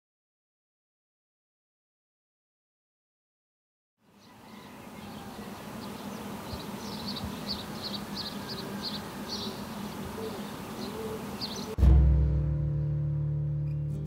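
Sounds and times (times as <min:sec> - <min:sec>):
small birds chirping: 0:04.0 - 0:11.8
low town hum: 0:04.1 - 0:14.0.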